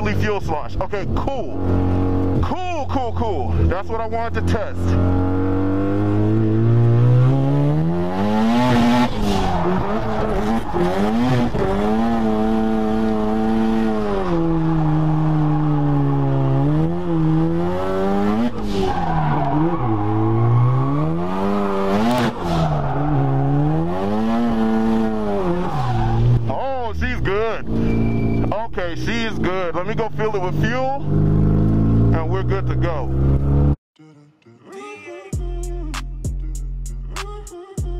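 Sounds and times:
engine revving: 0.0 - 33.8
tyres squealing: 18.5 - 23.6.

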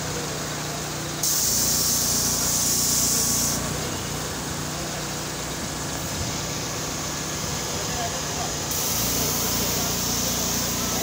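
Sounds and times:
engine hum: 0.0 - 11.0
sprayer nozzle hissing: 1.2 - 3.8, 8.7 - 11.0.

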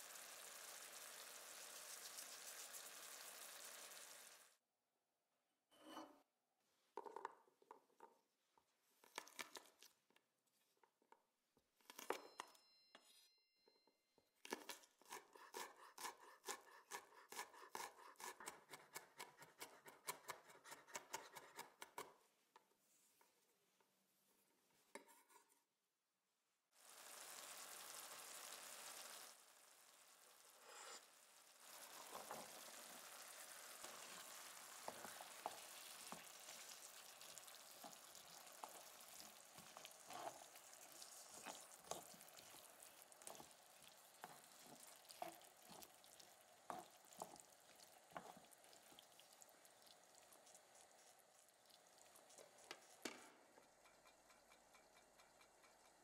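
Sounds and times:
pan sizzling: 0.0 - 4.6, 26.8 - 56.0.

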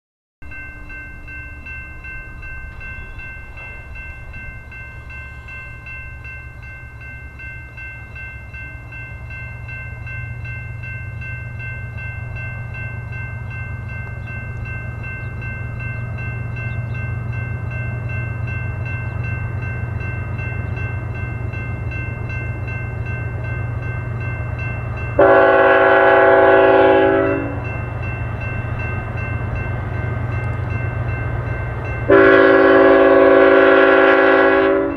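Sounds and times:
diesel locomotives rumbling: 0.4 - 34.9
train horn chord: 25.2 - 27.8, 32.1 - 34.9.

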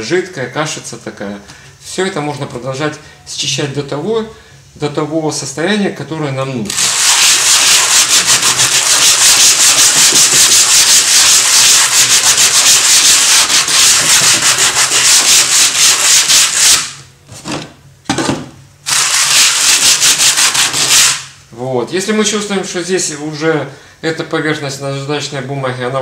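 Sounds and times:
sandpaper rubbing on wood: 6.7 - 17.0, 18.9 - 21.3.

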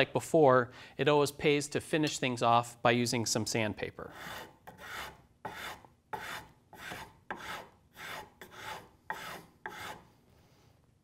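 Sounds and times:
sandpaper rasping on wood: 4.1 - 10.0.

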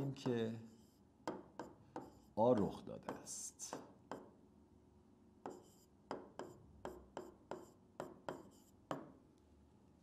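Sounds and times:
pen writing faintly: 0.1 - 3.2, 5.4 - 9.1.

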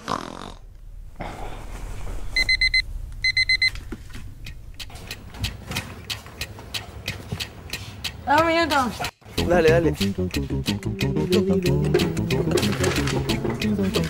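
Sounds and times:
alarm clock beeping: 2.4 - 3.7.

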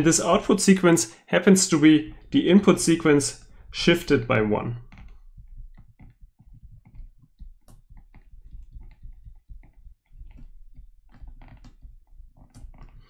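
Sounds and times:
low steady hum: 0.0 - 7.9
stylus tapping on tablet screen: 1.8 - 13.0.

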